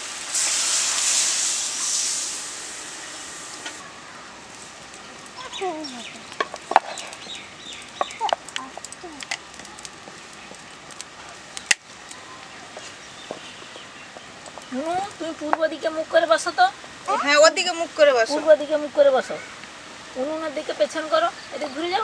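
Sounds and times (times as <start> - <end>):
water sizzling in hot wok: 0.0 - 22.0.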